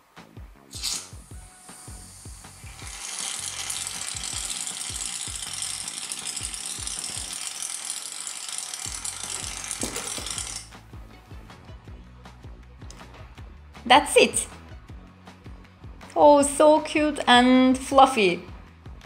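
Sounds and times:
aerosol foam spraying hiss: 0:00.7 - 0:03.3.

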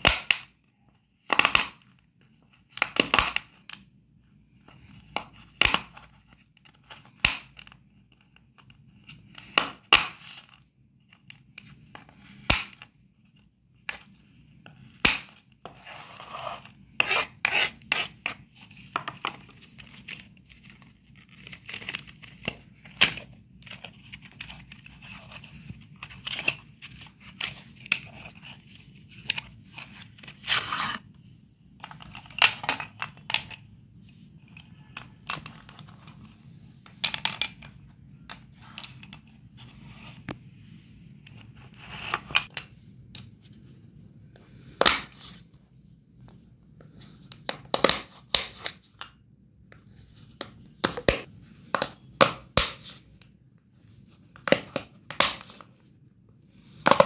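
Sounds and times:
chalk scraping across board: 0:15.7 - 0:18.2.

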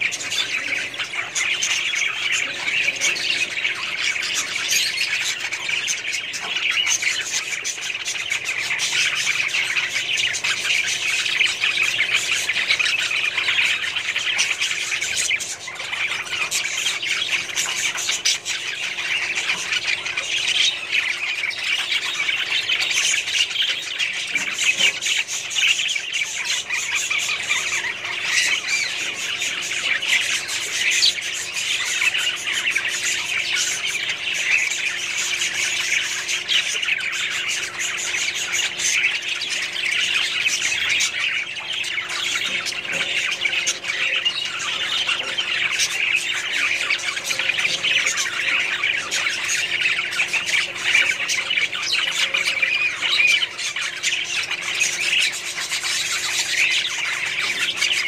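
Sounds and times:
budgerigars chattering: 0:00.0 - 0:58.0.

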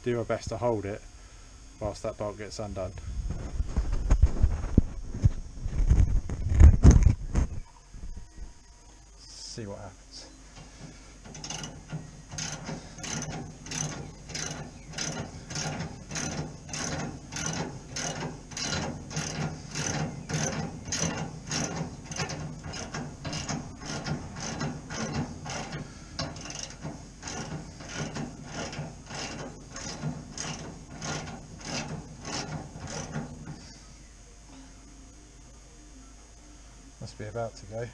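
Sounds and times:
ratchet wrench clicking: 0:11.3 - 0:33.2.

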